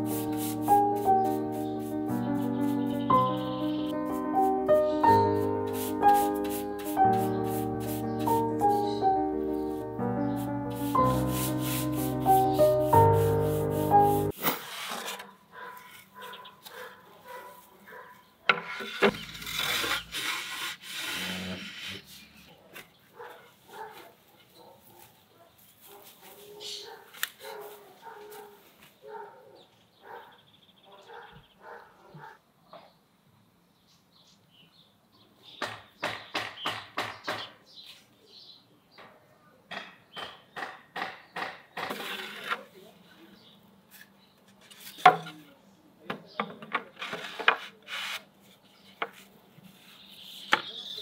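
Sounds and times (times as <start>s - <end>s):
wood rubbing against wood: 0.0s - 9.1s, 10.3s - 16.3s, 18.5s - 22.8s, 46.4s - 50.7s.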